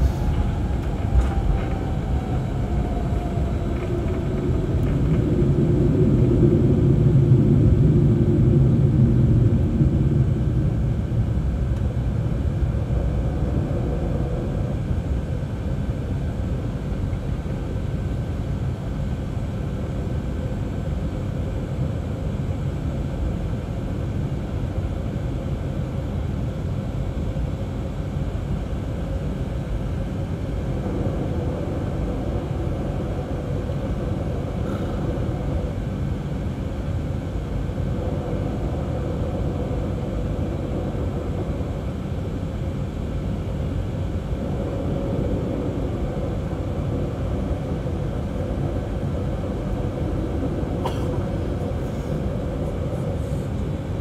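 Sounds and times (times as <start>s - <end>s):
faint descending whine: 0.0s - 8.6s
jet engine rumble in cabin: 0.0s - 54.0s.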